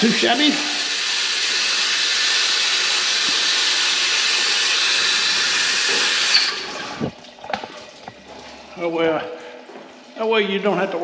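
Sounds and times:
shower spraying on tiles: 0.0s - 7.2s.

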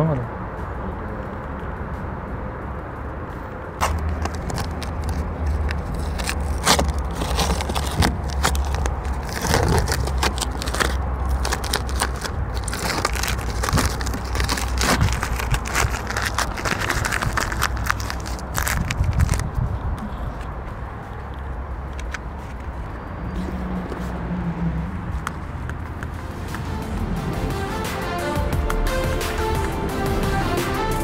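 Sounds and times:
masking tape peeling and crumpling: 3.8s - 20.6s.

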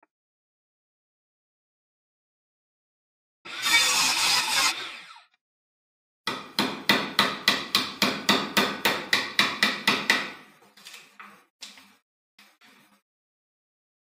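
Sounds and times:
hammer striking wood chisel: 6.3s - 10.4s.

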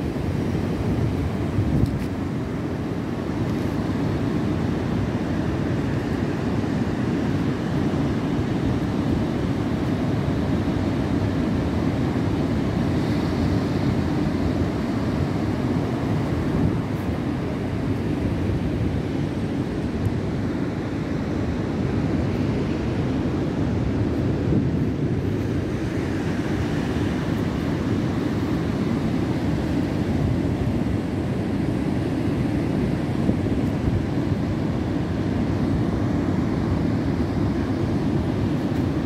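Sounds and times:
surf breaking on a beach: 0.0s - 39.0s
wind rumbling on microphone: 0.0s - 39.0s.

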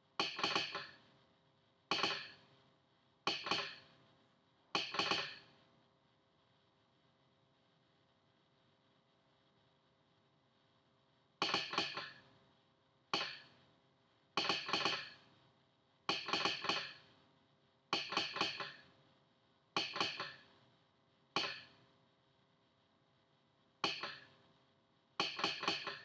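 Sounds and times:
telegraph sounder clicking morse code: 0.2s - 1.0s, 1.9s - 2.4s, 25.2s - 26.0s.

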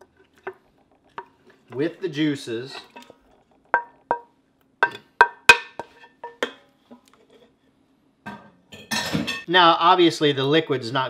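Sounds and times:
spatula tapping metal pot: 3.7s - 6.7s.

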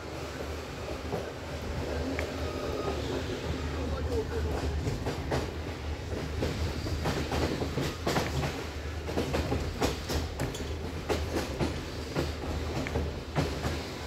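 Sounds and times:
train low rumble: 0.0s - 14.0s
train wheels clacking over rail joints: 4.5s - 14.0s.

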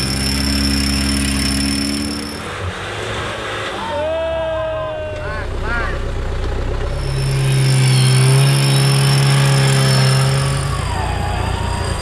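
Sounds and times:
vehicle engine running: 4.9s - 12.0s.

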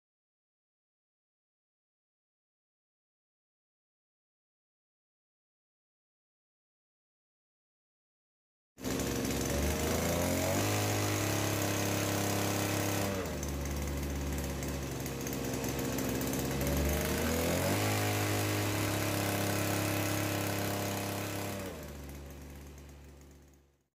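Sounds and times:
two-stroke engine revving: 8.8s - 23.9s.

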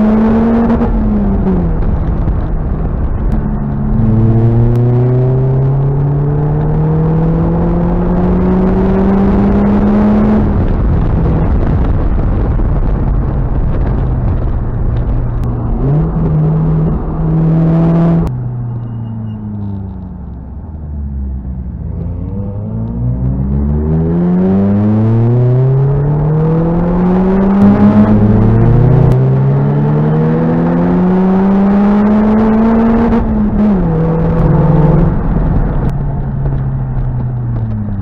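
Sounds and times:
car engine revving: 0.0s - 38.0s
road noise: 0.0s - 38.0s
wind noise: 0.0s - 38.0s.

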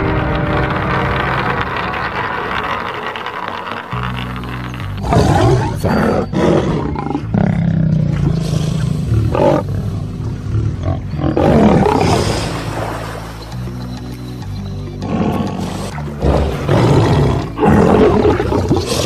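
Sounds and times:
background music: 0.0s - 19.0s
lion growling and roaring: 4.9s - 12.8s, 14.9s - 19.0s.

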